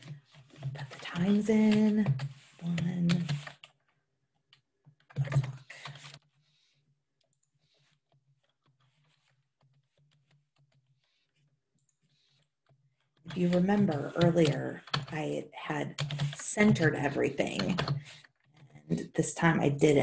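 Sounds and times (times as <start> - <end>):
computer keyboard typing: 0.0 - 3.8, 4.4 - 6.3, 12.0 - 19.0.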